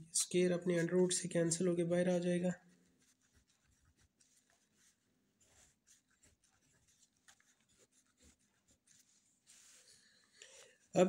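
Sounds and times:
pen scratching on paper: 2.8 - 9.9.

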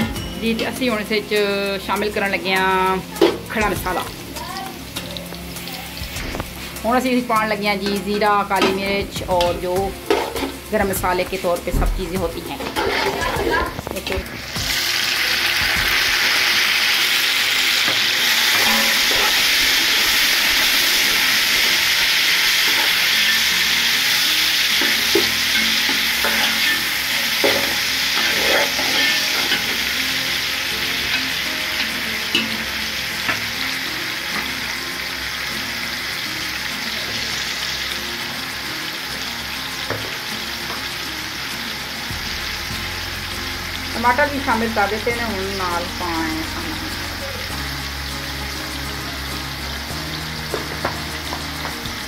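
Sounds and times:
onions sizzling in hot oil: 0.0 - 52.0
ladle stirring and scraping: 12.6 - 14.2, 17.8 - 32.6.

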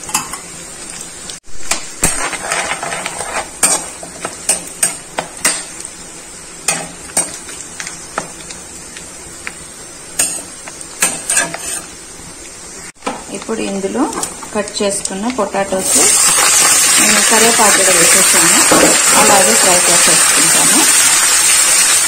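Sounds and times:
spices sizzling in hot oil: 0.0 - 22.0
metal spatula scraping pan: 2.0 - 5.6, 10.2 - 11.9.

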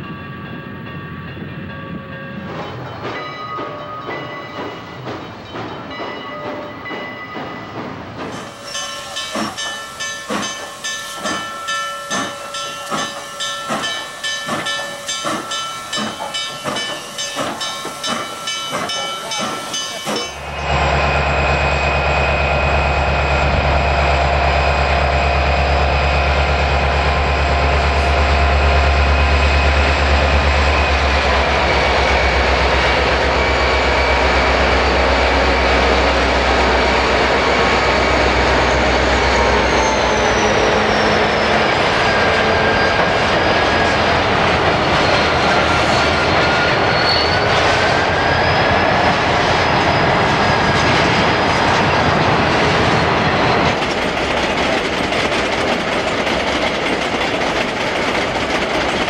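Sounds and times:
diesel locomotives droning: 0.0 - 59.0
steam locomotive chuffing: 2.6 - 59.0
hissing steam: 8.2 - 24.6.

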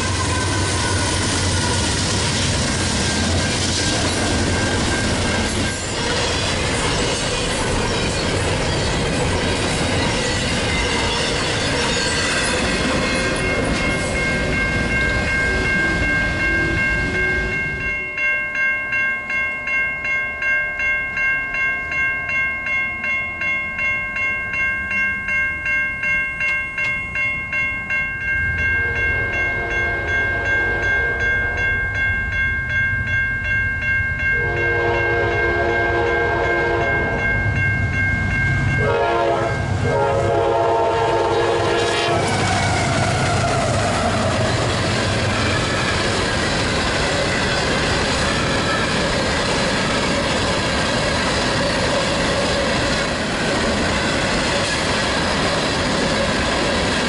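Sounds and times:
train wheels on rails: 0.0 - 19.8, 23.7 - 57.0
crossing warning bell ringing: 0.0 - 57.0
locomotive horn blasts: 34.4 - 37.2, 38.8 - 42.4.

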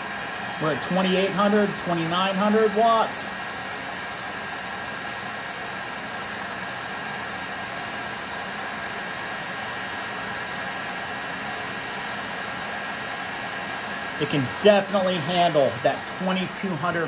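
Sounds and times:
faint high whine: 0.0 - 4.2, 10.4 - 17.0
heat gun blowing air: 0.0 - 17.0.

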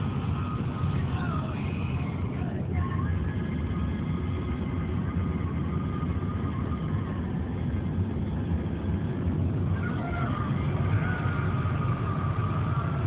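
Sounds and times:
car engine and tyre noise: 0.0 - 13.0.

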